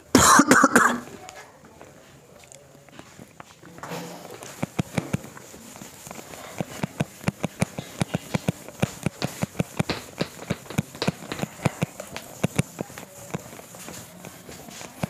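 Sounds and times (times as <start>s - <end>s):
duster scrubbing a whiteboard: 4.2s - 15.0s.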